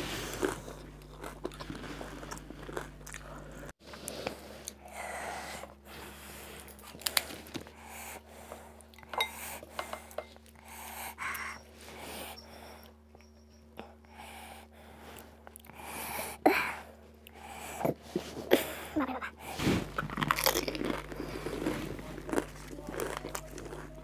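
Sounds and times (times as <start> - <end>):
person chewing food: 0.0 - 4.9, 19.4 - 24.0.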